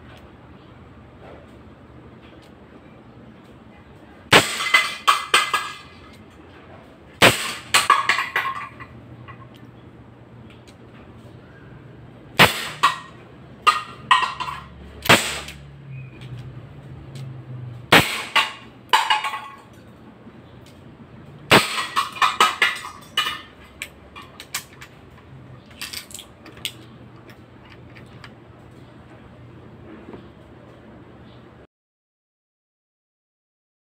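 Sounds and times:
sharp airsoft revolver shots: 4.3 - 5.7, 7.2 - 7.9, 12.4 - 13.1, 15.0 - 15.7, 17.9 - 18.7, 21.5 - 22.6
revolver handling clicks and rattles: 21.8 - 28.9.

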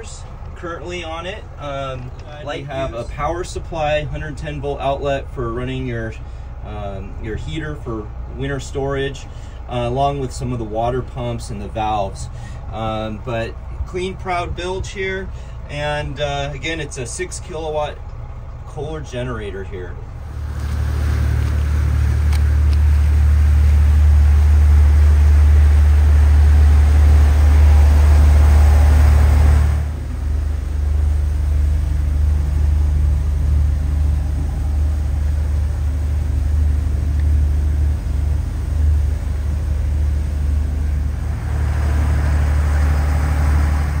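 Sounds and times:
boat engine: 0.0 - 44.0
water rushing along hull: 20.2 - 44.0
wind rumble: 20.2 - 44.0.

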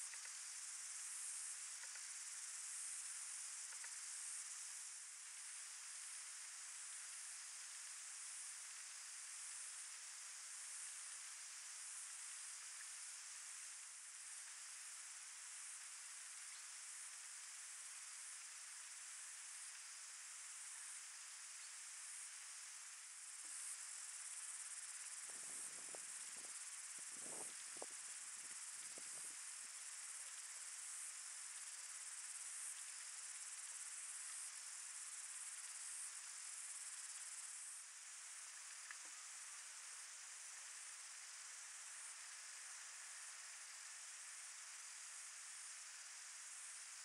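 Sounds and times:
faint high-pitched hiss: 0.0 - 47.0
soft low rustles: 25.2 - 28.0.

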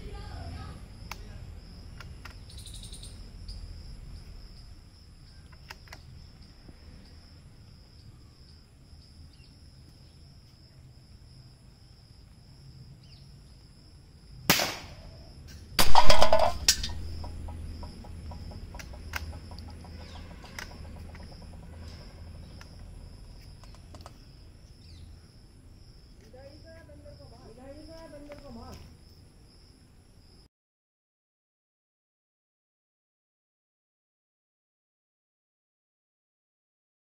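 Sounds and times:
rifle shot: 14.5 - 15.1, 15.8 - 17.0.

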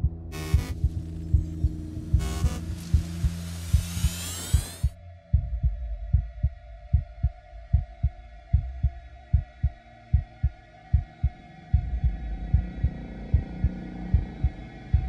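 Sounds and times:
humming drone: 0.0 - 7.0
deep heartbeat thumps: 0.0 - 15.0.

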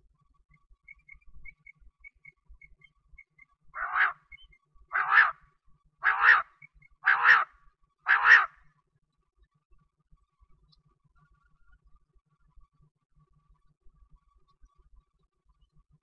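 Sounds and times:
faint soft bird notes: 0.0 - 16.0
quail harsh raspy calls: 3.8 - 5.4, 6.0 - 8.6.

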